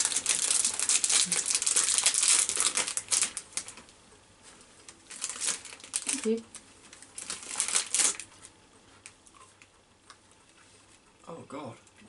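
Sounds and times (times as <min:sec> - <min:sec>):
candy wrapper crinkling: 0:00.0 - 0:04.0, 0:04.8 - 0:09.2.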